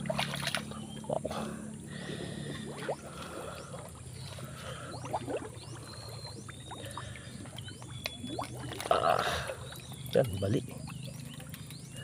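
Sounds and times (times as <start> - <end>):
muddy water sloshing: 0.0 - 12.0
water drops plinking: 5.0 - 11.7.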